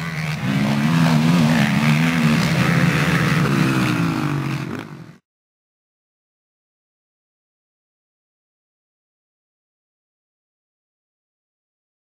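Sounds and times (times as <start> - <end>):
quad engines running hard: 0.0 - 5.2.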